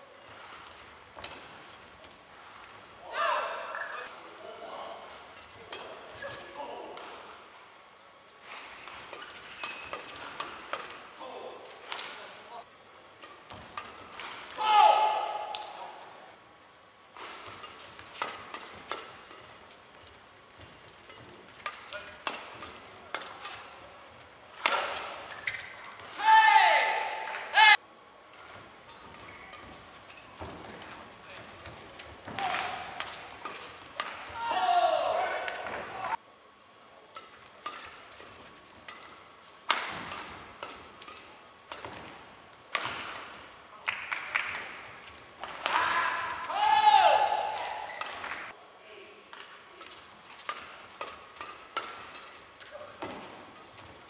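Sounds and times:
racquet hitting shuttlecock: 0.2 - 2.8, 5.2 - 7.2, 8.4 - 11.1, 11.8 - 12.4, 13.2 - 16.0, 17.1 - 27.7, 28.3 - 36.1, 37.1 - 48.5, 49.3 - 54.0
shoes squeaking on court: 8.5 - 10.4, 25.1 - 26.1, 28.4 - 32.4.

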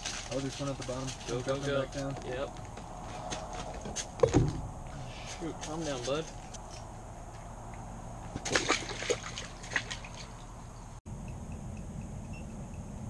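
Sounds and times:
water splashing from thrashing fish: 8.4 - 10.4.

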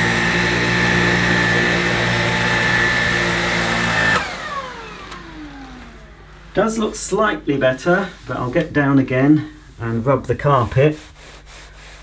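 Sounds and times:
motor spinning down: 0.0 - 6.5
stick vacuum high whine: 0.0 - 7.4.

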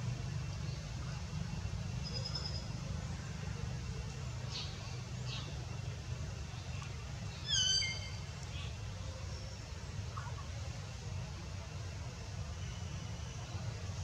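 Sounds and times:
steady low rumble: 0.0 - 14.0
squeaky call: 7.5 - 8.1.

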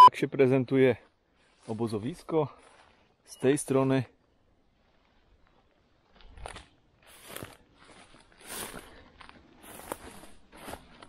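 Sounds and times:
footsteps through leaf litter: 6.2 - 11.0.

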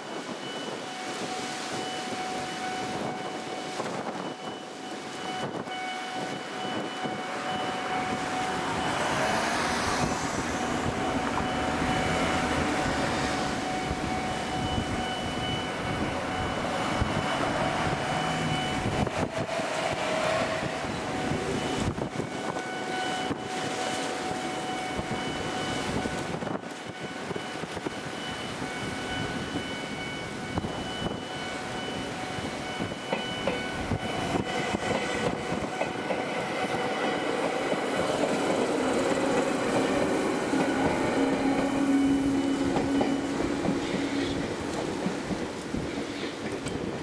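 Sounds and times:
level crossing alarm ringing: 0.0 - 45.9
train rumble and wheel noise: 0.0 - 47.0
wind buffeting microphone: 0.0 - 47.0.

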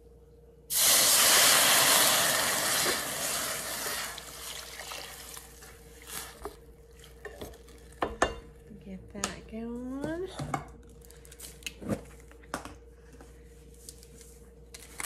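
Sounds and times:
water hissing in hot pot: 0.7 - 5.5.

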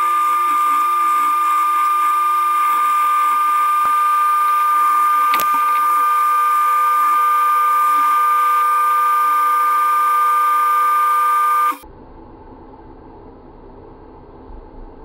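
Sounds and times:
belt sander whining: 0.0 - 11.8.

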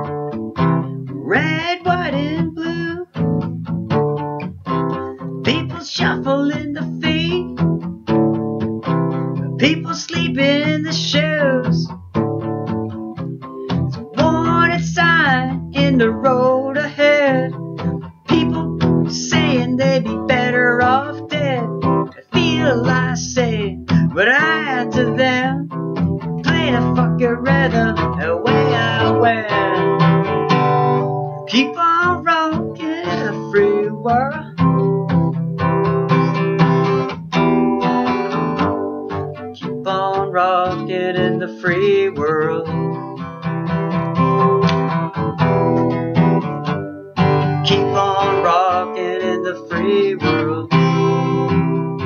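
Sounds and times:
acoustic guitar strummed and picked: 0.0 - 52.0
person singing wordlessly: 0.9 - 3.5, 5.2 - 7.9, 9.4 - 12.0, 13.9 - 35.1, 37.4 - 43.4, 47.2 - 52.0.

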